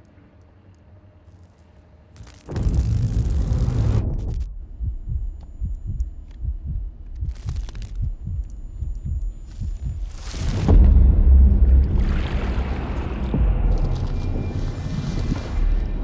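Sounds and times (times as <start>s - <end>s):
heavy low rumble: 2.2s - 16.0s
soft low thumps: 2.6s - 12.2s
faint high ringing tone: 4.5s - 10.6s.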